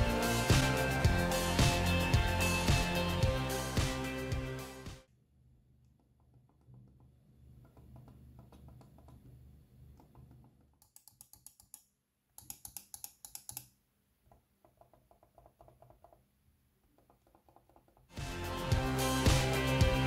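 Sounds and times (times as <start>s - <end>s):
soft mouse clicks: 6.3s - 16.2s.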